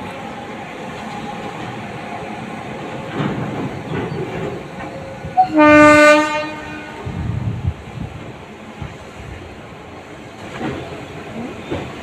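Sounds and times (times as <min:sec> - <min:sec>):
freight train rumbling over rails: 0:00.0 - 0:12.0
locomotive horn blast: 0:05.4 - 0:07.1.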